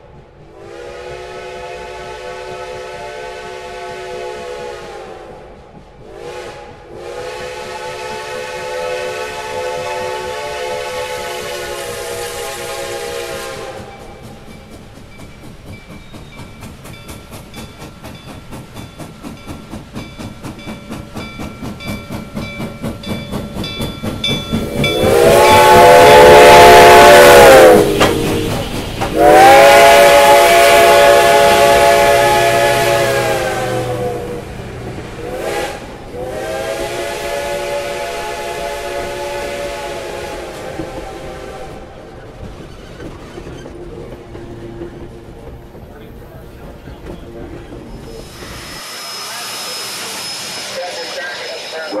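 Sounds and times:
steam locomotive exhaust beats: 0.0 - 52.0
train coaches rolling by: 0.0 - 52.0
steam whistle blasts: 0.5 - 5.4, 6.1 - 14.1, 24.8 - 34.5, 35.2 - 41.9, 48.0 - 52.0.

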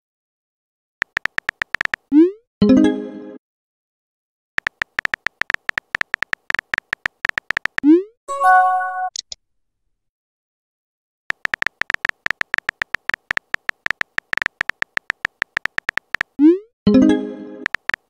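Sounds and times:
phone keyboard typing clicks: 1.0 - 2.1, 4.6 - 7.9, 11.3 - 16.4, 17.6 - 18.0
message chime: 8.3 - 9.1.

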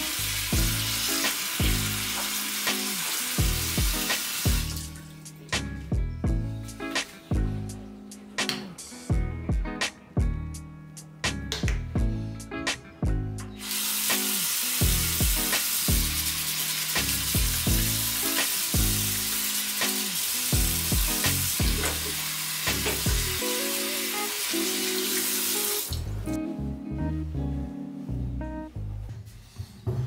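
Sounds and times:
background music with steady beat: 0.0 - 30.0
tap running into a washbasin: 0.1 - 5.1, 13.6 - 23.4.

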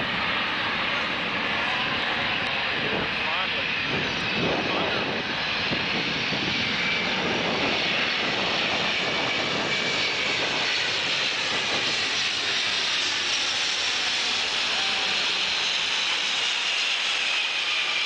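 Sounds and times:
jet engines passing overhead: 0.0 - 18.0.

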